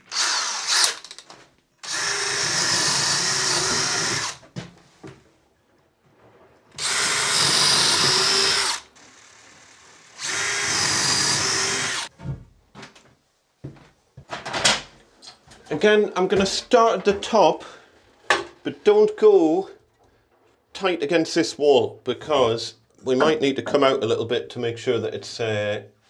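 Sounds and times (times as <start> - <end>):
cordless drill boring timber: 0.0 - 1.1, 1.8 - 4.4, 6.8 - 12.1.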